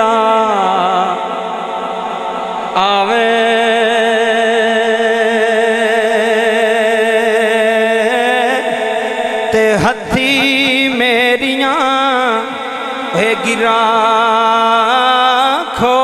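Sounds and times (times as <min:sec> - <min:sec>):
man singing with vibrato: 0:00.0 - 0:16.0.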